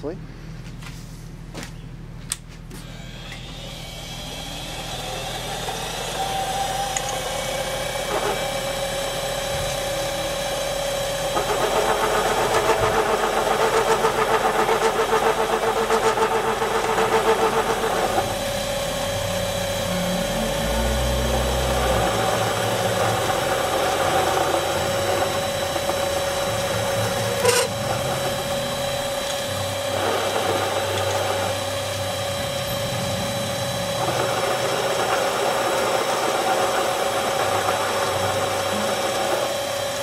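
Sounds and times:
metal lathe running: 2.8s - 40.0s
low hum: 18.2s - 37.2s.

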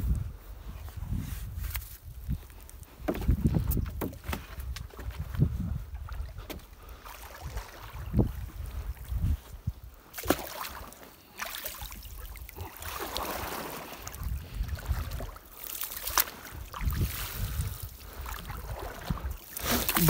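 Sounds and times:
wind rumbling on microphone: 0.0s - 10.1s, 12.0s - 15.5s, 16.2s - 20.0s
water splashing and sloshing: 1.7s - 20.0s
knocks against boat: 3.1s - 4.5s.

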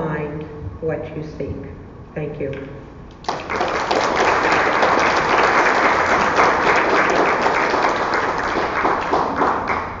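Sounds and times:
crowd applauding: 3.2s - 10.0s.

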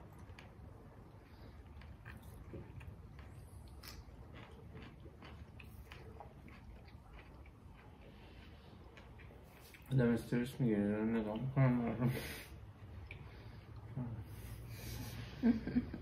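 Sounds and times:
chewing and biting food: 0.0s - 11.6s.

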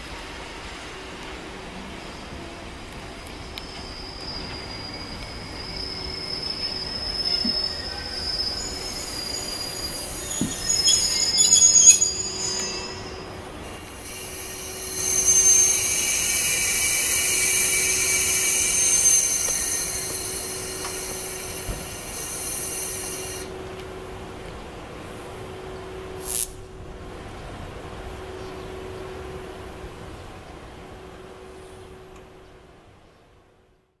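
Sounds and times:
train wheels squealing: 3.0s - 23.5s.

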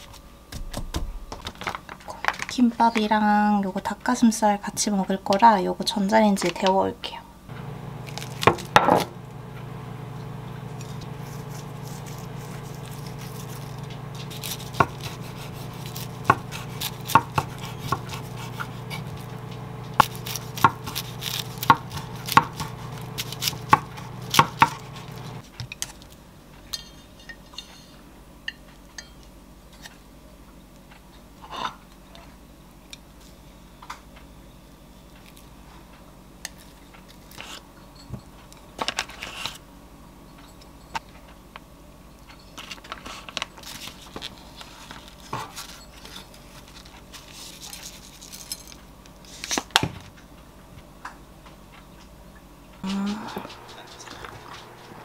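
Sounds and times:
microwave oven humming: 7.1s - 26.7s, 48.7s - 55.0s
knife cutting on wooden board: 10.8s - 25.4s.

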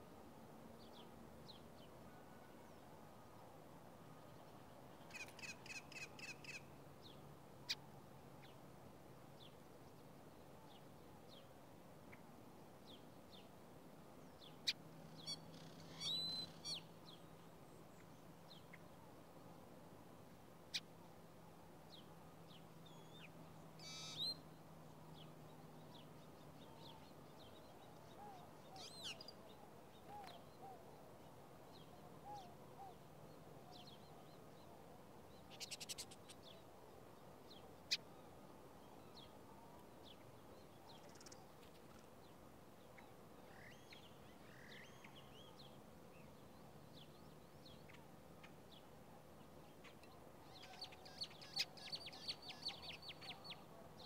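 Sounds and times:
songbirds chirping: 0.0s - 54.0s.

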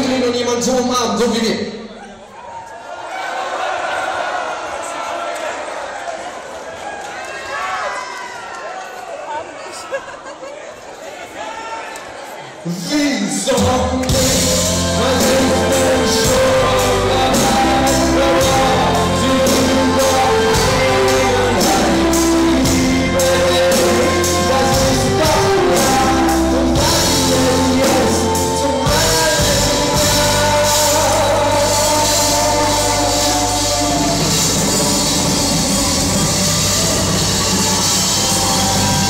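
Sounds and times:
person singing: 13.4s - 39.0s
live band playing: 13.5s - 39.0s
steady drum beat: 13.6s - 39.0s.

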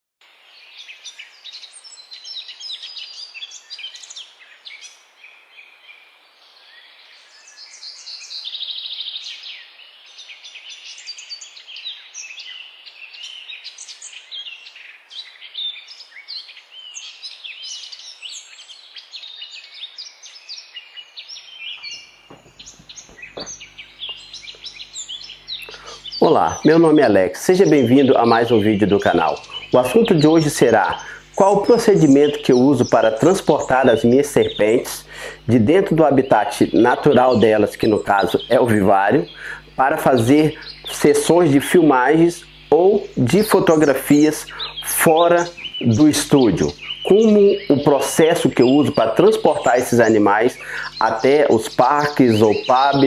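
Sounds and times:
birds chirping and calling: 0.6s - 53.0s
faint hiss: 21.8s - 53.0s
fast buzzing trill: 22.0s - 53.0s.

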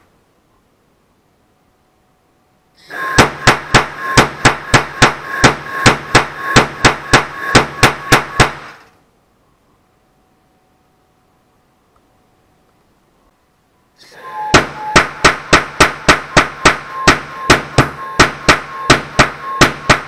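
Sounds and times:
gas hissing: 2.8s - 8.8s
noise cannon sharp bangs: 2.9s - 8.8s, 14.5s - 20.0s.

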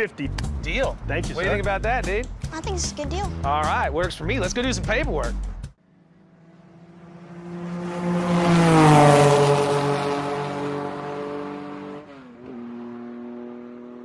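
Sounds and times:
engine sweeping past: 5.8s - 14.0s.

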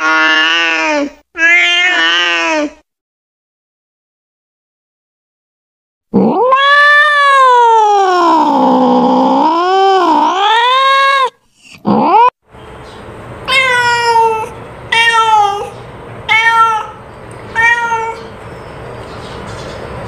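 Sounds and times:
cat meowing: 0.0s - 2.8s, 6.2s - 11.3s, 13.5s - 18.3s.

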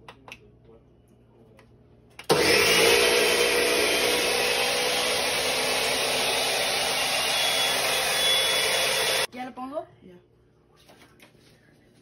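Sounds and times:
blender running: 2.3s - 9.3s.

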